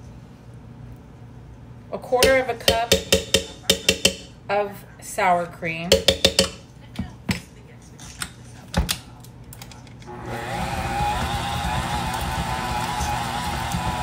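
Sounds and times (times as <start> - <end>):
electric stand mixer running: 10.1 - 14.0.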